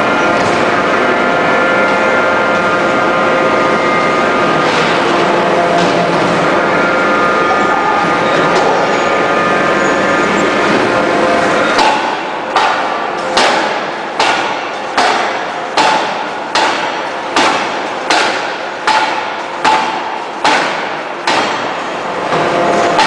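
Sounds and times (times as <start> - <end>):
forging hammer striking steel: 11.6 - 23.0.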